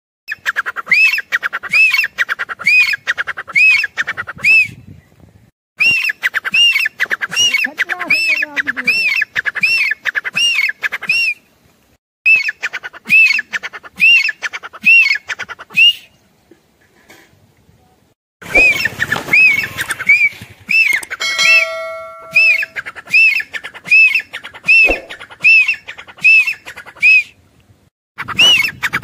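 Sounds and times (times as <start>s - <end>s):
francolin shrill calls: 5.8s - 11.4s, 18.5s - 27.3s.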